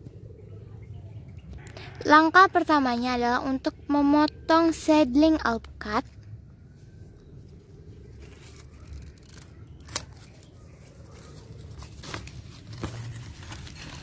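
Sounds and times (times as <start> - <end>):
pruning shears snipping stem: 8.5 - 10.5.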